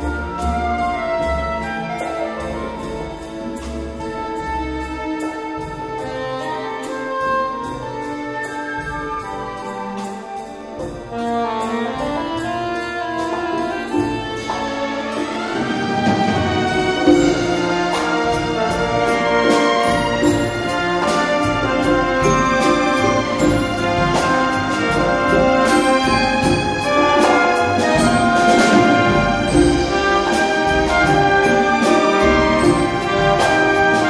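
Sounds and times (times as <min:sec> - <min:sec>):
symphony orchestra: 0:00.0 - 0:34.0
soprano saxophone melody: 0:11.0 - 0:15.2.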